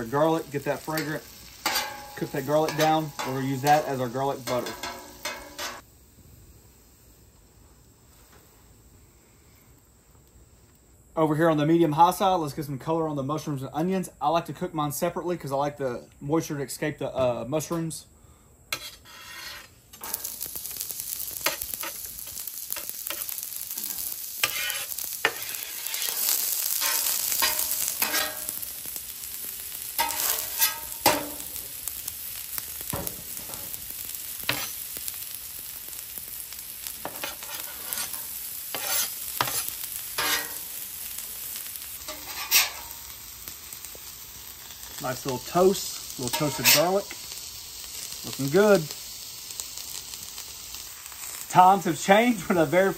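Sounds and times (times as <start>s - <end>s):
vegetables sizzling on a griddle: 0.0s - 52.9s
metal spatula scraping griddle: 0.2s - 5.8s, 18.7s - 20.5s, 22.7s - 28.7s, 30.0s - 31.5s, 34.5s - 34.8s, 37.0s - 40.8s, 42.0s - 43.0s, 46.2s - 47.1s.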